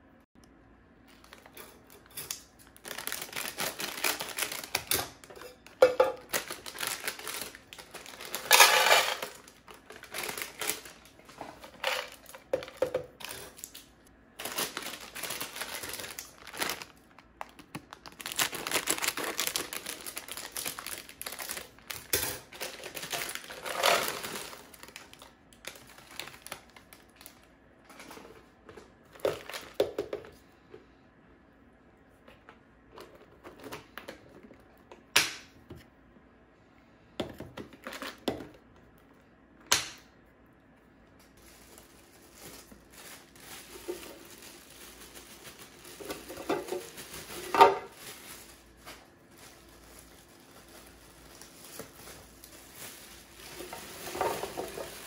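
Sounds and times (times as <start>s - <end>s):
plastic bag crinkling: 1.0s - 30.2s, 41.3s - 55.0s
chips rattling into plastic canister: 1.2s - 13.8s, 14.4s - 28.4s, 29.1s - 30.3s, 49.7s - 55.0s.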